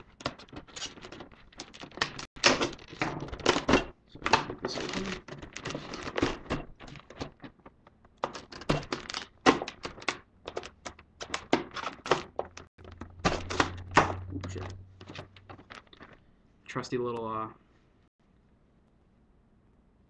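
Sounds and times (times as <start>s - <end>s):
plastic packaging clicks and taps: 5.3s - 16.2s.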